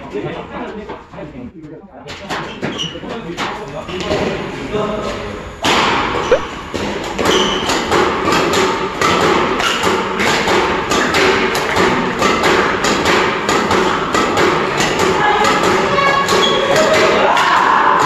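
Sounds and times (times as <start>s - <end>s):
racket hitting shuttlecocks: 5.6s - 18.0s.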